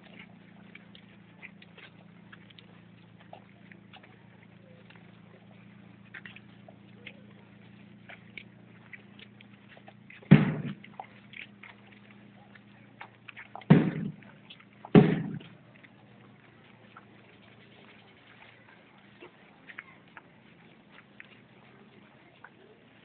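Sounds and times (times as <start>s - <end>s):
faint low hum: 0.0s - 23.0s
loud sudden thumps: 10.3s - 10.8s, 13.7s - 14.2s, 14.9s - 15.5s.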